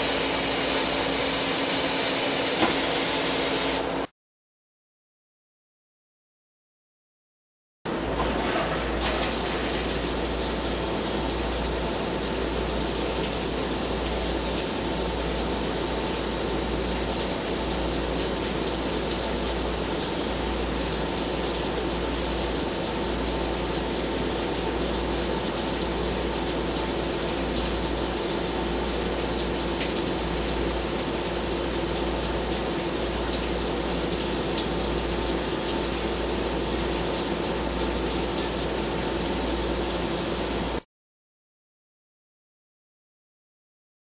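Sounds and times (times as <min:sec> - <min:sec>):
coolant gushing and splashing: 0:00.0 - 0:03.8, 0:08.7 - 0:40.7
lathe boring bar cutting: 0:00.0 - 0:03.8
machine hum: 0:00.0 - 0:04.1.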